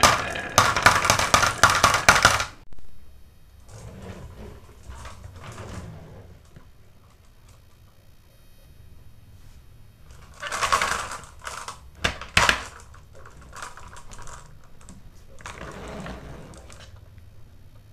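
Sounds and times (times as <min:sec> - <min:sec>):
marbles rolling down wooden run: 0:00.0 - 0:02.6, 0:10.2 - 0:16.9.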